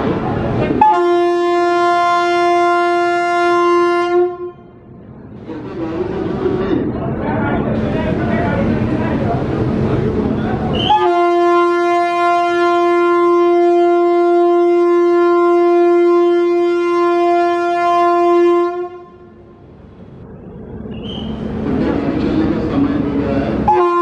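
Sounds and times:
locomotive air horn blast: 0.8s - 4.7s, 10.8s - 19.4s, 23.6s - 24.0s.

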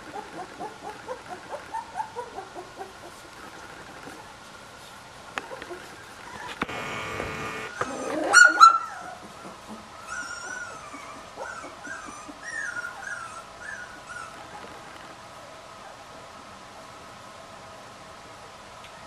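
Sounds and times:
puppy whining: 0.0s - 4.4s, 5.4s - 6.8s, 7.6s - 15.1s
puppy whimpering: 5.4s - 6.6s, 7.7s - 14.9s
puppy squealing: 7.7s - 9.2s, 10.0s - 14.4s.

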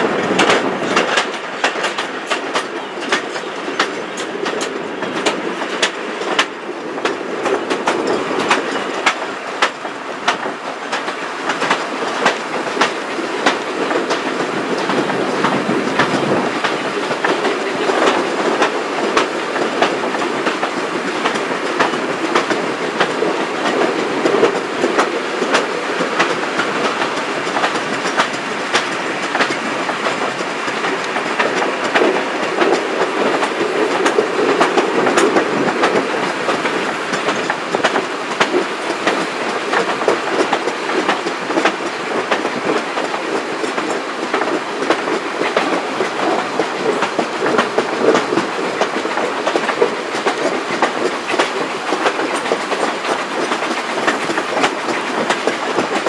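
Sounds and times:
train wheels rumbling: 0.0s - 56.0s
wheels clicking over rail joints: 0.0s - 56.0s.

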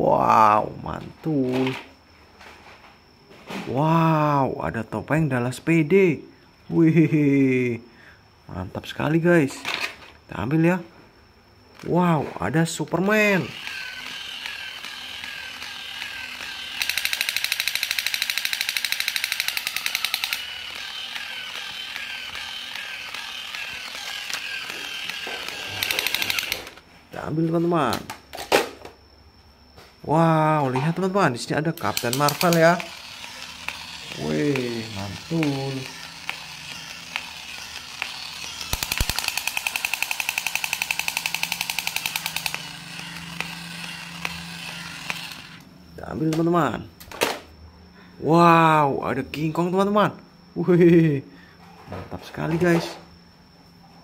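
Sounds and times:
toy wavering electronic tone: 13.2s - 26.7s, 31.9s - 45.6s
toy machine-gun fire sound: 13.2s - 26.8s, 31.8s - 45.6s.

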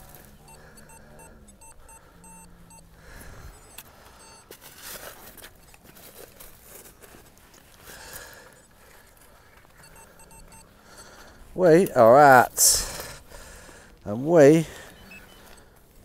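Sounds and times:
metal detector low tone: 0.0s - 4.6s.

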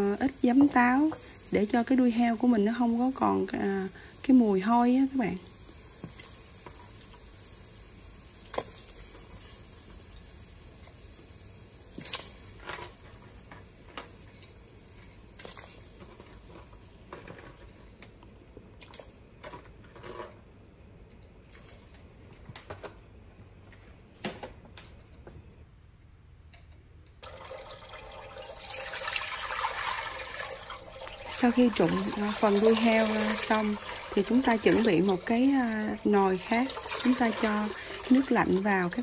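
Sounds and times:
water pouring into a pot: 0.0s - 11.1s, 27.2s - 39.0s
water simmering in a pot: 0.0s - 22.1s, 27.2s - 39.0s
small pops and splashes: 11.9s - 12.4s, 18.0s - 19.2s.

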